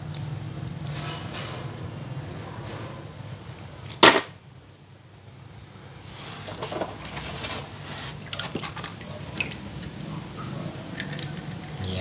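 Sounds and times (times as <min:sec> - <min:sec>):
water sloshing and splashing: 0:06.3 - 0:11.8.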